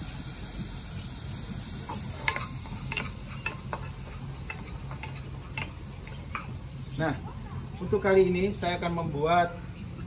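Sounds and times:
food sizzling in a frying pan: 0.0s - 10.0s
steady low hum: 0.0s - 10.0s
utensil scraping and tapping pan: 1.9s - 6.6s.

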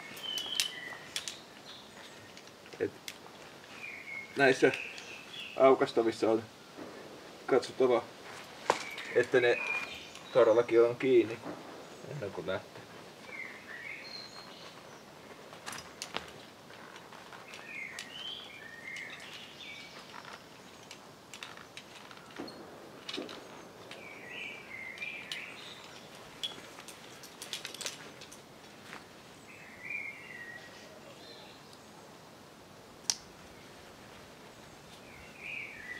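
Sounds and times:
songbird warbling: 0.0s - 2.3s.

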